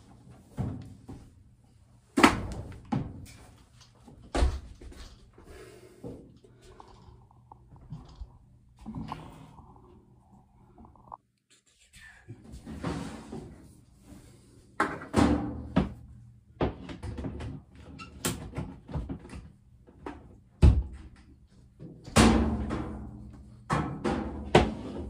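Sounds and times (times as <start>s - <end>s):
washer and dryer knocking and clattering: 0.4s - 1.3s, 2.2s - 3.4s, 14.8s - 21.2s, 21.8s - 25.0s.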